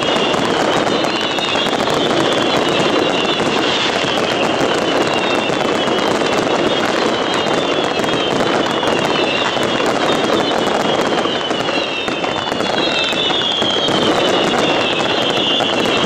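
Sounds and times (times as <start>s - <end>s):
fireworks crackling: 0.0s - 16.0s
fireworks shells bursting: 0.0s - 16.0s
high wavering falling whistle: 10.2s - 15.9s.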